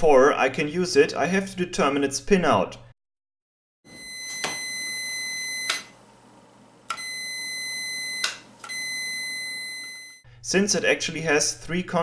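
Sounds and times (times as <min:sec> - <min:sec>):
multimeter continuity beep: 0:03.9 - 0:06.0, 0:06.9 - 0:10.2.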